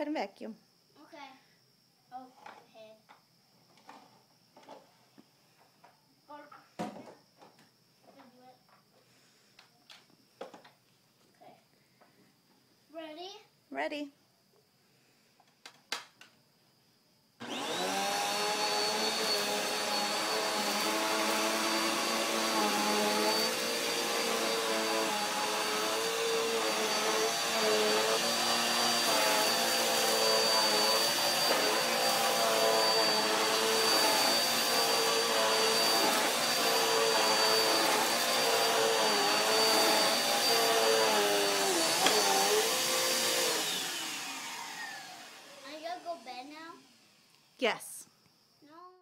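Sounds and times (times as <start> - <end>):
vacuum cleaner running on carpet: 17.4 - 46.0.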